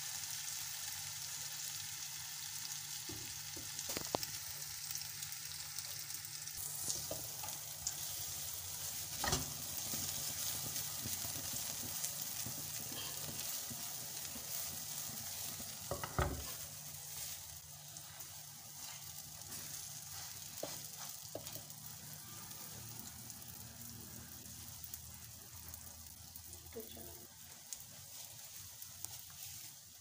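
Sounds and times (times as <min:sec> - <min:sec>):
bread sizzling in frying pan: 0:00.0 - 0:30.0
spatula knocking on pan: 0:15.9 - 0:16.5.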